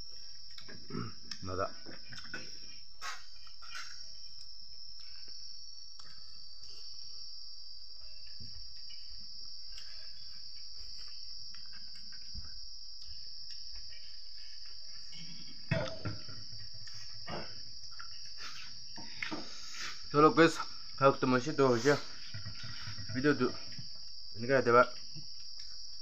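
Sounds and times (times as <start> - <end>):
crickets trilling: 0.0 - 26.0
eating from metal bowl: 15.1 - 19.9, 21.7 - 23.7.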